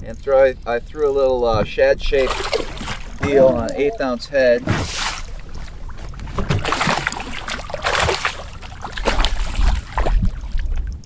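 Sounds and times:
fish splashing in water: 2.1s - 3.3s, 4.0s - 11.0s.

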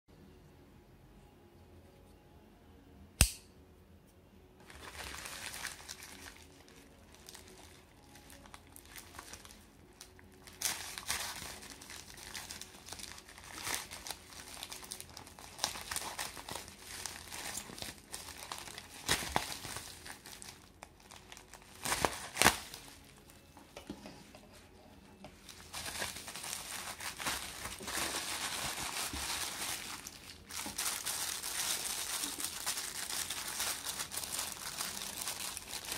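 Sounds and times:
folding knife snapping open: 3.2s - 3.5s
plastic bag crinkling and tearing: 4.6s - 23.3s, 25.4s - 35.9s
plastic wrap crinkling: 4.6s - 23.4s, 24.6s - 35.9s.

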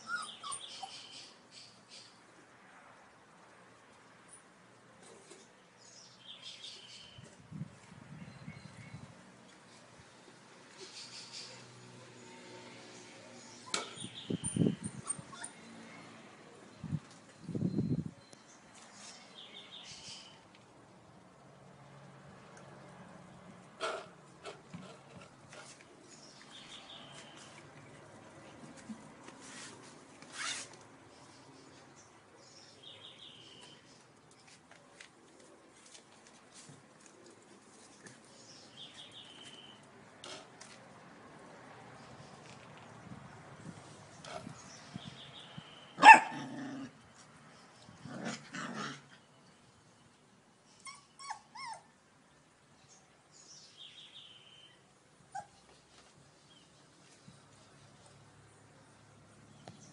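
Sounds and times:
puppy yipping: 0.0s - 1.1s, 13.6s - 15.7s, 46.0s - 46.4s, 50.8s - 51.9s, 55.3s - 55.7s
bird chirping: 0.0s - 2.2s, 38.3s - 39.8s, 52.8s - 54.8s
puppies scratching on tile floor: 23.8s - 31.0s, 33.9s - 39.6s
puppy barking: 46.0s - 46.8s.

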